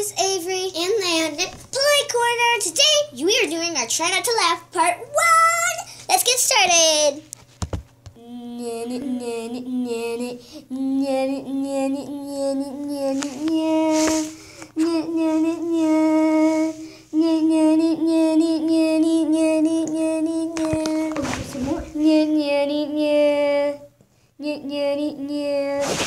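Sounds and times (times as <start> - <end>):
high voice singing held notes: 8.2 - 23.2.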